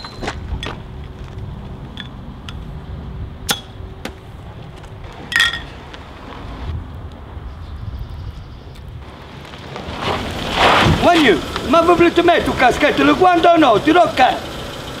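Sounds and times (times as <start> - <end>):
glass bottles clinking: 5.3 - 5.7
bottle cap dropping on pavement: 5.3 - 5.8.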